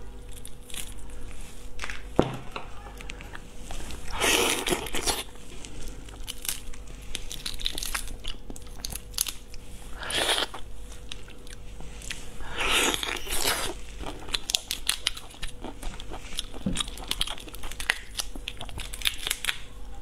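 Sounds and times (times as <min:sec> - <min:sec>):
shrimp shell cracking: 0:16.8 - 0:19.7.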